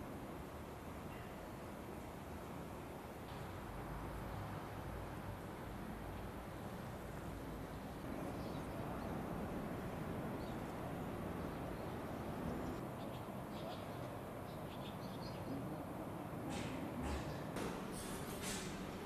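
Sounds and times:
low background hum: 0:00.0 - 0:19.0
faint bird chirps: 0:11.4 - 0:15.6.

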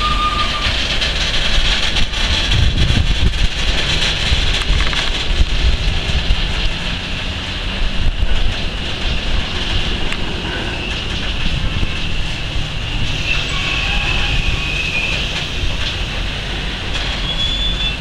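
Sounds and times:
thin wheel squeal: 0:00.0 - 0:00.8, 0:12.8 - 0:15.4, 0:17.1 - 0:18.0
train wheels rumbling on rails: 0:00.0 - 0:18.0.

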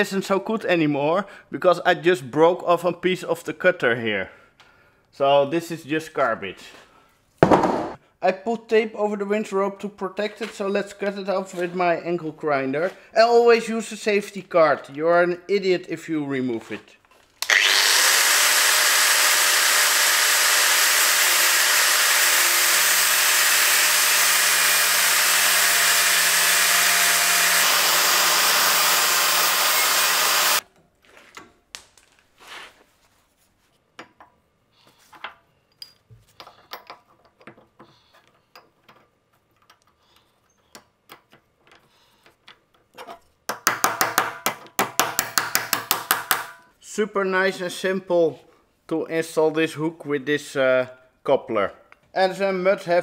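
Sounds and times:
angle grinder cutting steel: 0:17.4 - 0:30.6.

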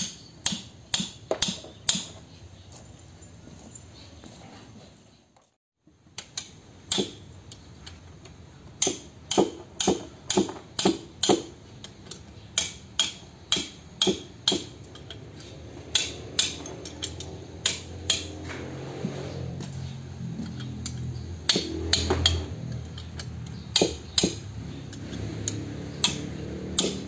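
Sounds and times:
wrench clicking on bolts: 0:00.0 - 0:02.2, 0:06.0 - 0:18.4, 0:20.2 - 0:27.0.

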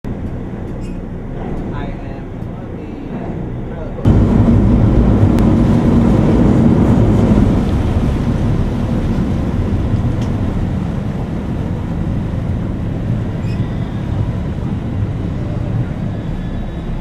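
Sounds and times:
boat engine rumble: 0:00.0 - 0:17.0
wind buffeting microphone: 0:00.4 - 0:17.0
rushing water: 0:04.1 - 0:17.0.

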